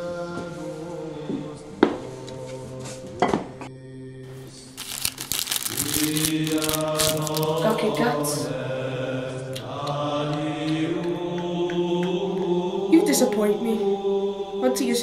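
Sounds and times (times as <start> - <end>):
crinkling and clicking: 4.8 - 7.7
choir singing a held chord: 6.4 - 15.0.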